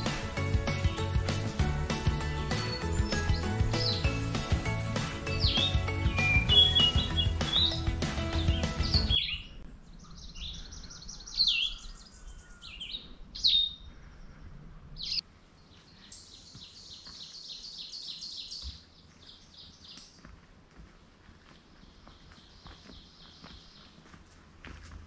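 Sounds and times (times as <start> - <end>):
songbirds trilling: 0.0 - 20.3, 21.6 - 24.1
sharp downward-slurred bird chirps: 5.3 - 7.8, 8.4 - 14.3.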